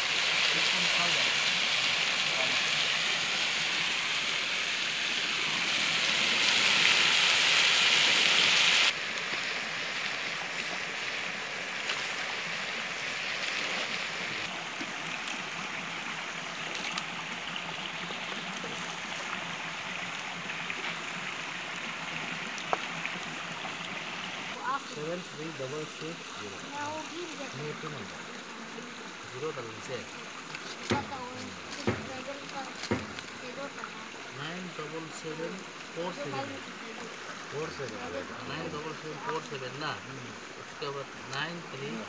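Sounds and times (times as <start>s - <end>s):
meat sizzling in a wok: 0.0s - 14.5s
stream running over stones: 0.0s - 42.0s.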